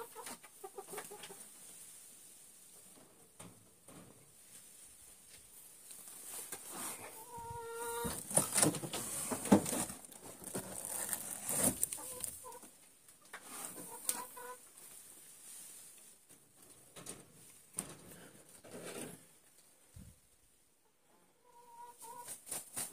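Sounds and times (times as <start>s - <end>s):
hen squawking and clucking: 7.0s - 8.2s
eggs knocking and rustling: 8.0s - 12.6s.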